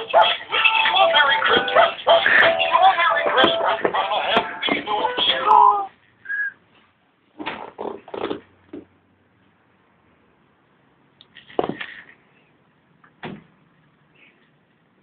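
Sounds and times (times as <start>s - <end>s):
handling knocks and rustles: 11.3s - 12.2s.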